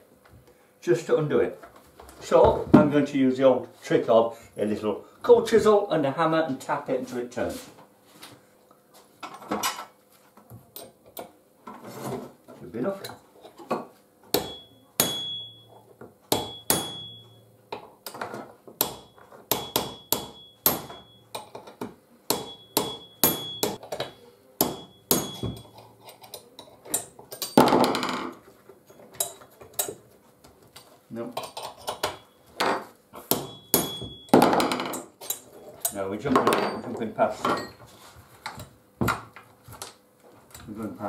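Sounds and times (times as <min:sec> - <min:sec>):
hammer tapping metal chisel: 0:14.4 - 0:17.4, 0:18.8 - 0:27.6.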